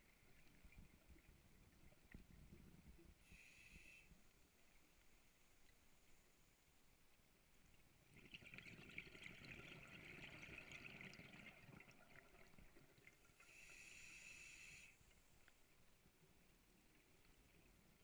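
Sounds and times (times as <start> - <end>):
regulator hiss: 13.4 - 15.0.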